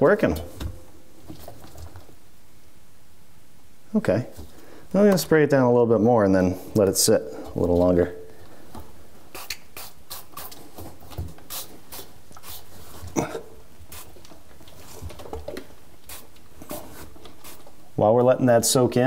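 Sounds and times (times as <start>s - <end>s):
spray bottle hissing squirts: 9.3s - 10.6s, 11.4s - 12.8s, 13.9s - 14.2s, 16.0s - 17.8s.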